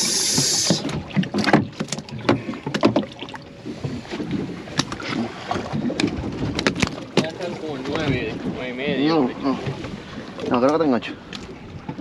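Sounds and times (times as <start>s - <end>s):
brief hiss: 0.0s - 0.8s
taps and knocks on boat: 0.3s - 12.0s.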